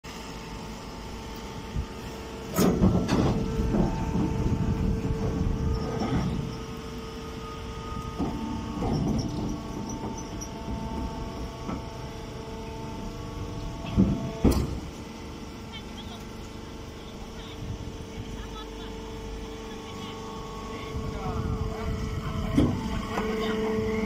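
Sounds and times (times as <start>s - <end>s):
power unit humming: 0.0s - 24.0s.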